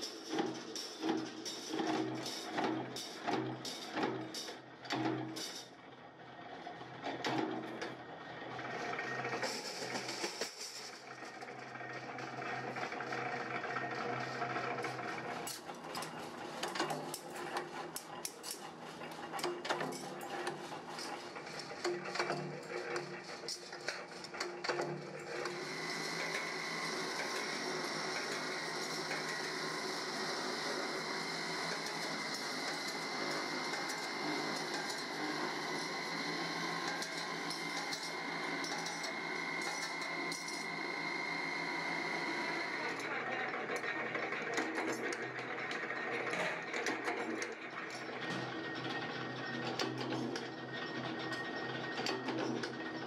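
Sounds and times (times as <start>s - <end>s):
machine motor humming: 18.6s - 43.2s.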